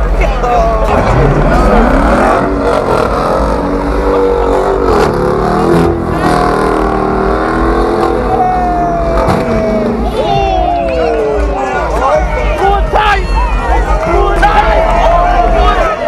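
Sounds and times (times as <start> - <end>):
car engine revving hard: 0.8 - 10.1.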